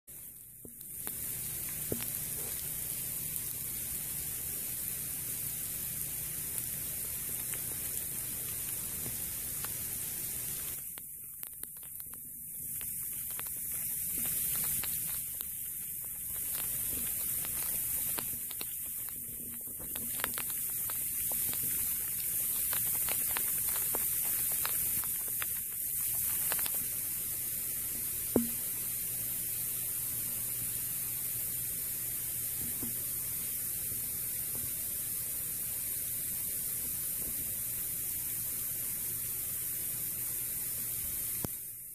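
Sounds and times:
ice pellets ticking: 0.1 - 28.8
steady high-pitched hiss: 0.1 - 41.9.

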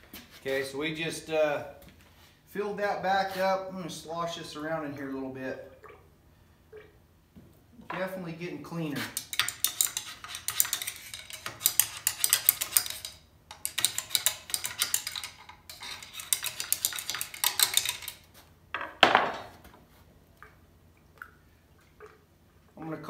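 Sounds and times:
metal rod scraping and clinking: 9.0 - 18.3.

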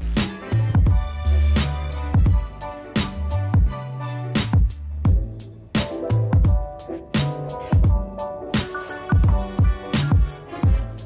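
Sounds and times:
background music with steady beat: 0.0 - 11.0.

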